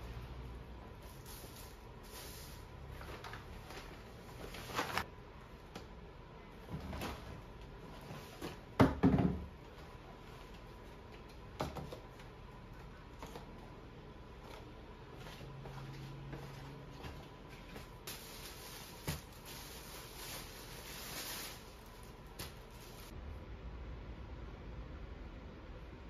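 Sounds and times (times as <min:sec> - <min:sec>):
paper bag rustling: 0:01.0 - 0:05.1, 0:17.7 - 0:23.2.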